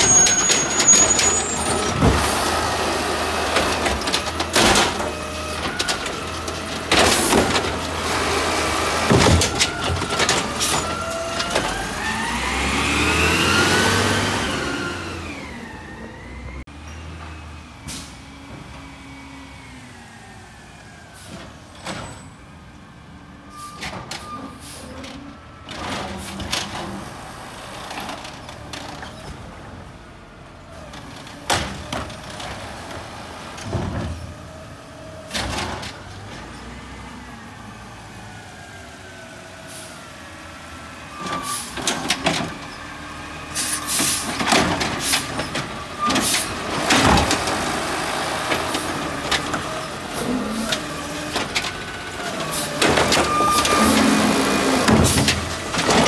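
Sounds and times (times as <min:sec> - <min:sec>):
carts knocking and clattering: 0:03.4 - 0:11.9, 0:43.9 - 0:56.0
air brakes hissing: 0:17.8 - 0:18.2
garbage truck engine running: 0:40.4 - 0:56.0.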